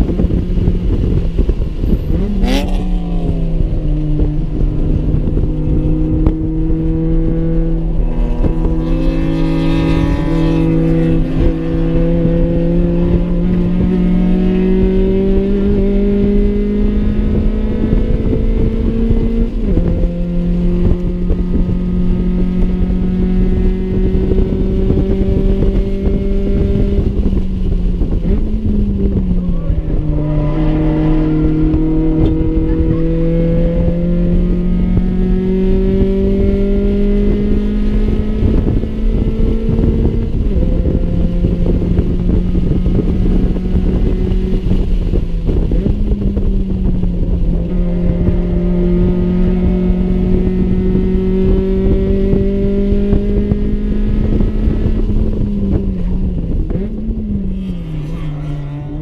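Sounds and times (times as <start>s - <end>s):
car engine revving through gears: 0.0s - 59.0s
wind and road noise: 0.0s - 59.0s.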